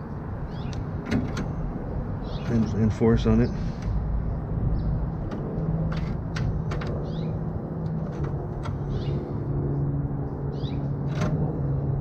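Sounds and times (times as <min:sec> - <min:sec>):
bird chirps: 0:00.5 - 0:00.8, 0:02.2 - 0:02.7, 0:07.0 - 0:07.4, 0:08.8 - 0:09.2, 0:10.5 - 0:10.9.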